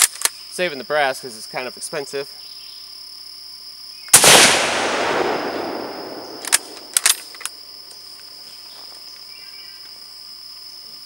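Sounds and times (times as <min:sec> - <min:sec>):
rifle bolt clicks: 0:00.0 - 0:00.4, 0:04.2 - 0:07.6
insects buzzing: 0:00.0 - 0:11.0
rifle shot echo: 0:04.1 - 0:07.4.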